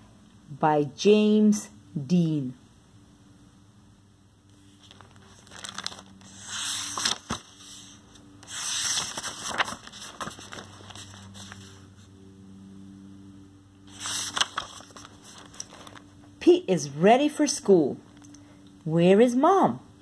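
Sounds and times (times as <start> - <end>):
faint steady hum: 0.0 - 20.0
book pages rustling: 4.5 - 12.1, 13.9 - 16.3.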